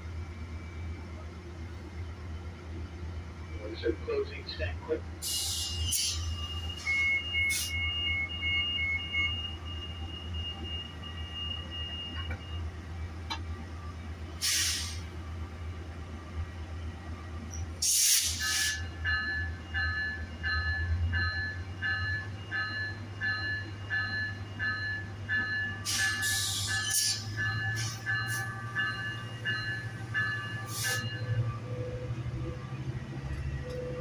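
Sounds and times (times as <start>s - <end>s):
diesel locomotive idling: 0.0s - 34.0s
air hiss of doors: 14.4s - 15.1s, 17.8s - 18.8s
departure bell ringing: 18.4s - 34.0s.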